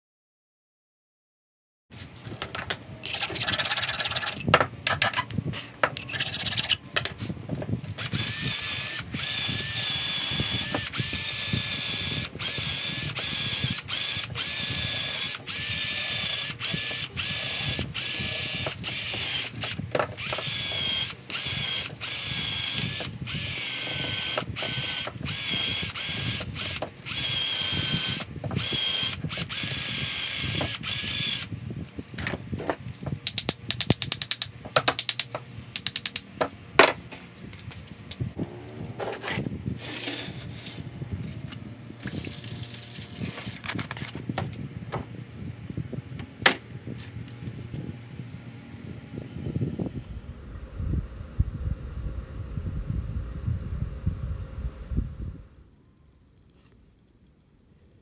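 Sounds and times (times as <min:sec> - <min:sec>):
drill wire brush scrubbing metal: 0:03.0 - 0:04.5, 0:06.0 - 0:06.8.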